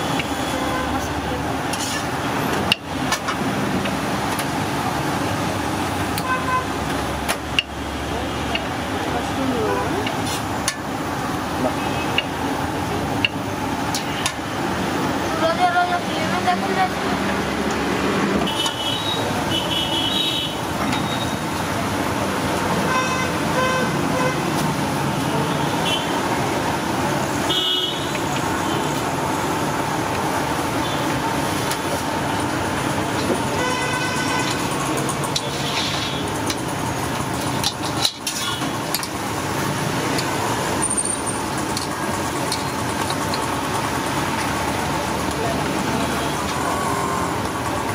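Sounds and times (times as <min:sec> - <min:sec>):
steady rushing background noise: 0:00.0 - 0:47.9
street traffic noise: 0:00.0 - 0:47.9
vehicle horns tooting: 0:06.2 - 0:06.8, 0:18.4 - 0:21.4, 0:22.8 - 0:24.5, 0:25.6 - 0:26.2, 0:27.5 - 0:29.0, 0:33.5 - 0:34.8.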